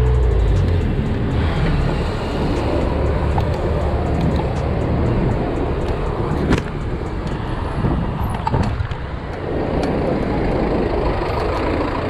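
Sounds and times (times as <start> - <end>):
street traffic: 0.0 - 12.0
wind rumble on microphone: 0.0 - 12.0
sharp clicks: 2.6 - 7.4.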